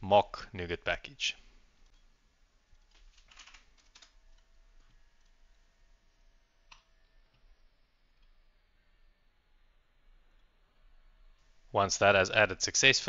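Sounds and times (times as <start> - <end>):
computer keyboard typing: 2.8 - 5.3.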